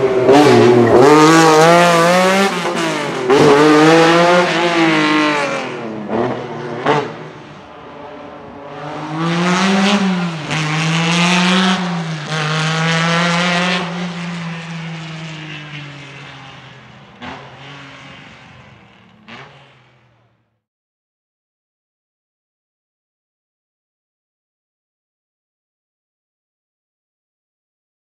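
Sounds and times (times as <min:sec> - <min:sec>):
car engine accelerating hard: 0:00.0 - 0:20.5.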